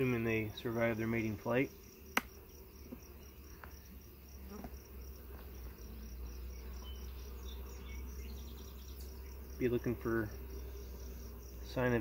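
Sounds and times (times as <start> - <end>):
insect chirping: 0.0 - 12.0
hive tool clicking on frames: 2.1 - 2.3.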